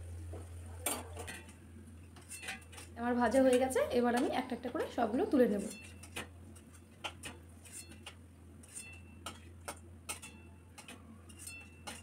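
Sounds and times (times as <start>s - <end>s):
steel spoon clinking on bowl: 7.8s - 12.0s.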